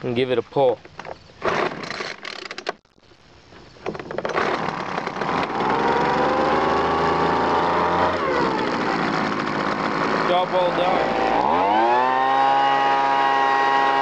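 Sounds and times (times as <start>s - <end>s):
recoil starter rattling: 3.9s - 14.0s
two-stroke engine running: 4.2s - 14.0s.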